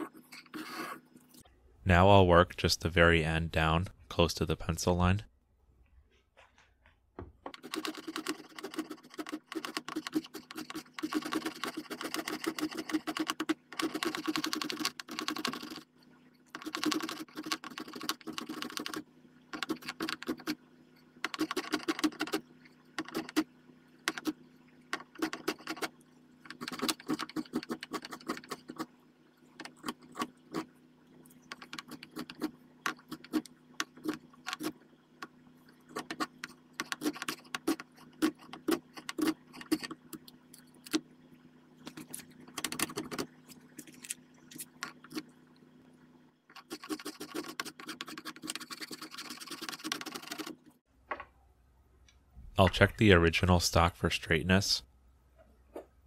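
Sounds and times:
spokeshave scraping wood: 7.5 - 15.9, 35.9 - 40.0, 46.5 - 50.6.

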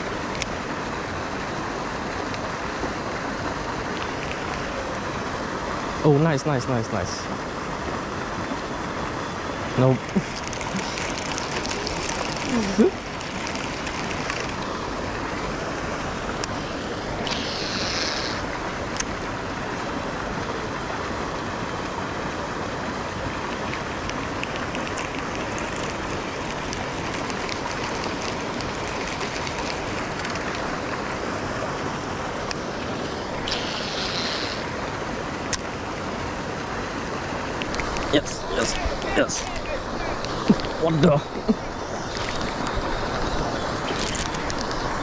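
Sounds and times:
steady rushing noise: 0.0 - 45.0
short high hisses: 17.2 - 18.4, 33.4 - 34.7
faint clicks: 37.6 - 38.1.

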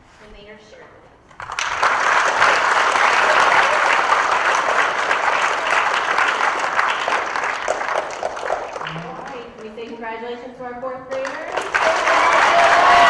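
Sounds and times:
children applauding: 1.3 - 9.7, 11.2 - 13.0.

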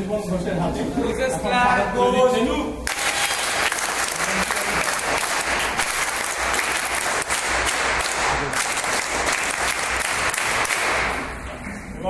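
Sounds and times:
audience clapping: 2.8 - 11.4.

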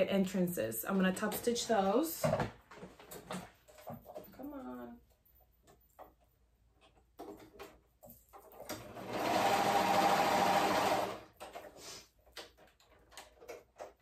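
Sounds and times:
sewing machine stitching: 8.5 - 11.5.

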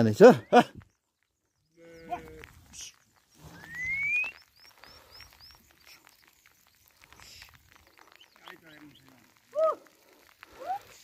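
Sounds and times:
rising whistle: 3.5 - 4.4.

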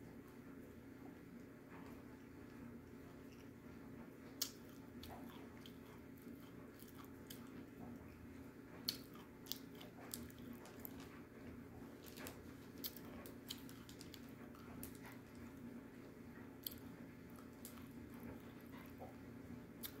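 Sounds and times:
person chewing with crunches: 4.3 - 15.7, 16.5 - 19.2, 19.8 - 20.0.

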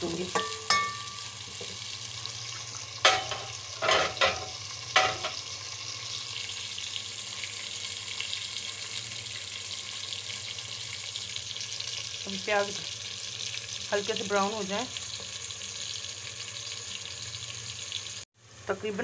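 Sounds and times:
onions sizzling in hot oil: 0.0 - 19.0
metal utensil clanks: 0.3 - 1.2, 3.0 - 5.4.

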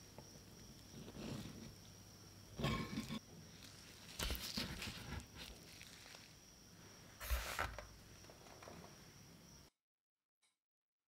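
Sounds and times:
biting and chewing bread: 3.6 - 6.4.

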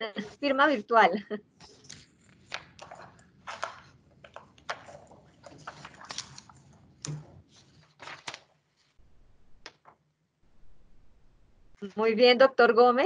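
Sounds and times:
paper rustling: 1.6 - 10.0.

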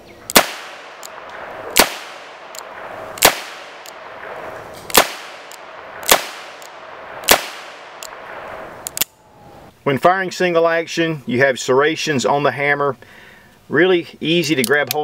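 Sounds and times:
revolver shots: 0.3 - 8.8.

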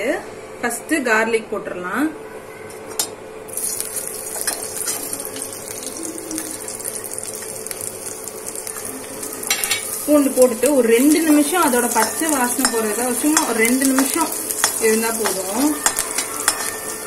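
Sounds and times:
garlic sizzling in hot oil: 3.5 - 17.0.

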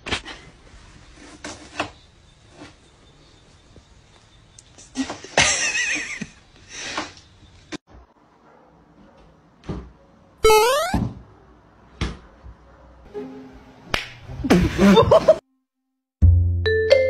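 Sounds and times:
door hinge squeaking: 10.4 - 11.1.

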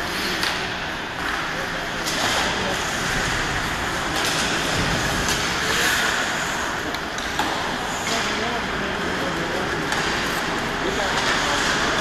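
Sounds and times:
skates scraping on ice: 1.2 - 12.0
stick hitting puck: 4.0 - 6.2, 6.9 - 8.4, 9.9 - 12.0.

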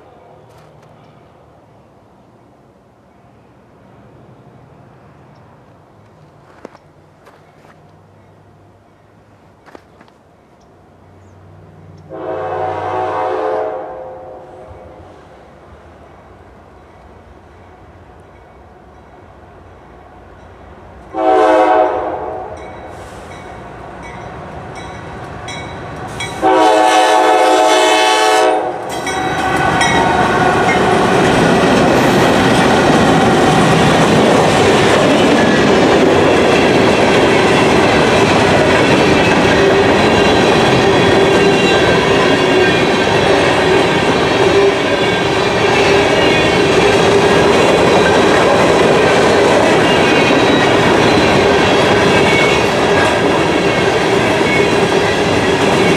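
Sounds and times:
train wheels on rail: 0.0 - 1.4, 4.6 - 13.8, 14.4 - 55.9
locomotive horn blasts: 12.1 - 15.0, 21.1 - 23.2, 26.3 - 31.2
locomotives passing: 22.2 - 55.9.

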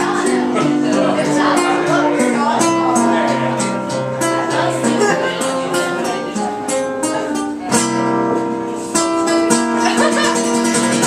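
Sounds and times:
strummed acoustic guitar: 0.0 - 11.0
hand drum: 7.1 - 11.0.

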